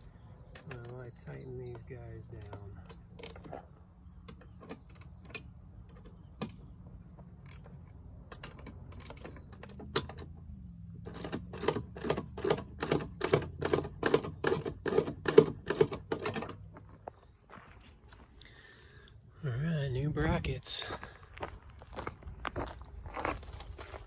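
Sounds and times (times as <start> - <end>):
ratchet wrench clicking: 7.4 - 7.7, 8.3 - 10.2.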